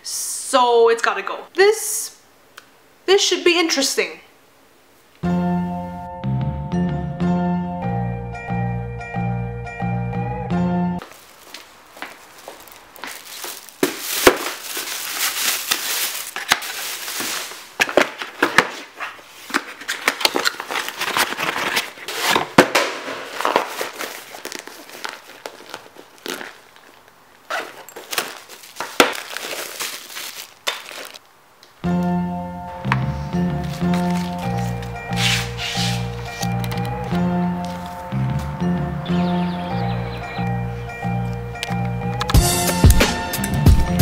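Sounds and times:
music: 5.2s - 11.0s, 31.8s - 44.0s
plastic bag crinkling: 11.0s - 31.3s, 33.6s - 38.1s.

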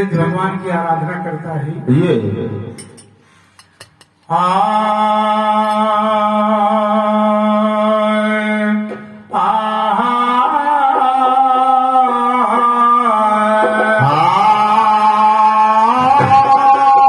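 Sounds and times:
man singing into microphone: 4.2s - 17.0s.

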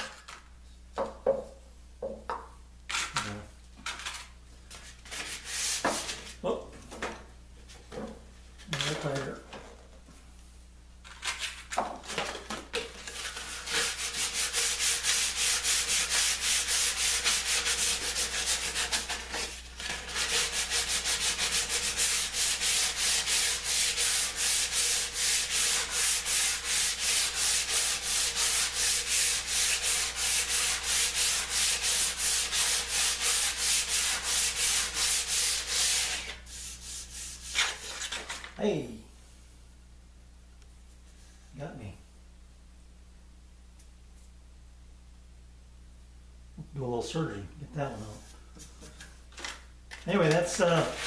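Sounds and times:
sandpaper rubbing on wood: 5.0s - 6.3s, 13.1s - 38.3s, 50.4s - 51.0s.

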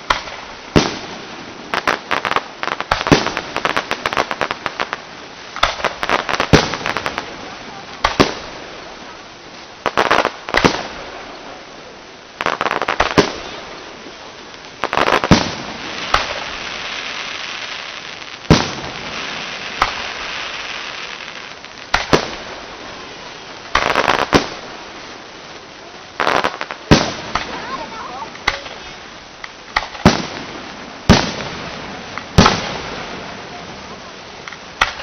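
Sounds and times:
fireworks bursting with sharp bangs: 0.0s - 35.0s
fireworks crackling and fizzing: 0.0s - 35.0s.

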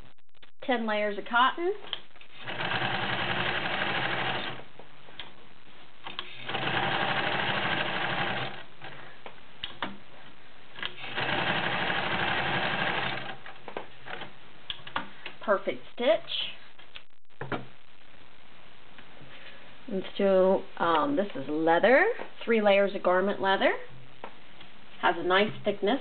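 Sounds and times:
clicks: 1.8s - 2.3s, 5.1s - 5.4s, 9.2s - 10.0s
sewing machine stitching: 2.3s - 4.6s, 6.2s - 8.6s, 10.9s - 13.5s.

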